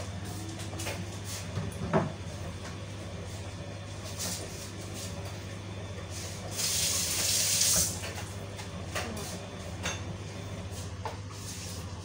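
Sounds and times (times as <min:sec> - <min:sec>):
kitchen tap running into sink: 0:06.5 - 0:08.2.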